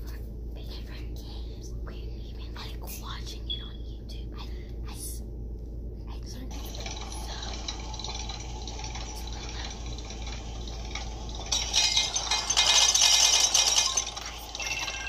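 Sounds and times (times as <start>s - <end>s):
rattling crackling rustle: 6.5s - 15.0s.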